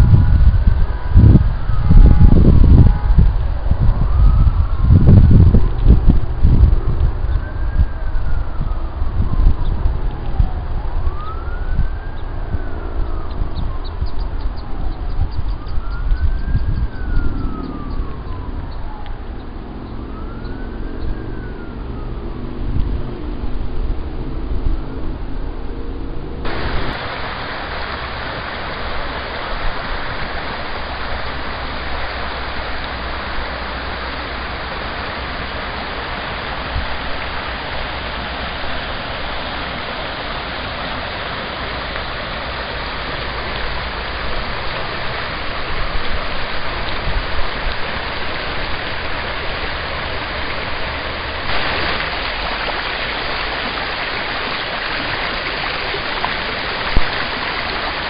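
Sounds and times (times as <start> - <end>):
brook rushing over rocks: 26.5 - 58.0.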